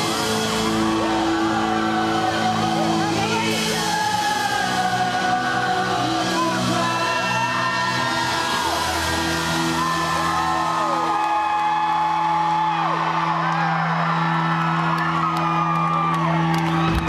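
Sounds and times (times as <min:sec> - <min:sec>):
live amplified band music: 0:00.0 - 0:11.5
fans whooping and cheering: 0:00.0 - 0:17.0.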